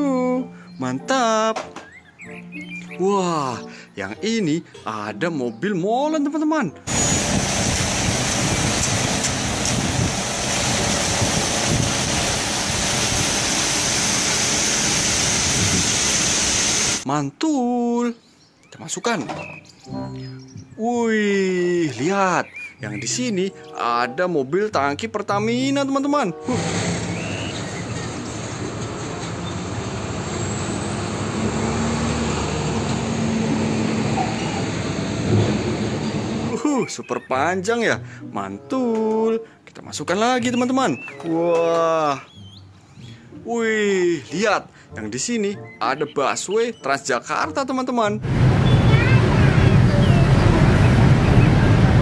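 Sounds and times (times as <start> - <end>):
road noise: 6.9 - 17.1, 26.4 - 36.6, 48.2 - 52.0
concrete rushing down chute: 26.5 - 33.1
truck diesel engine rumble: 26.6 - 36.6.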